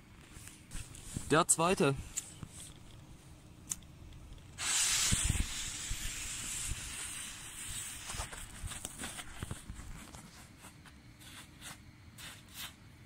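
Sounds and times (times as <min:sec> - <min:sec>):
firework fountain hissing: 0:04.5 - 0:09.6.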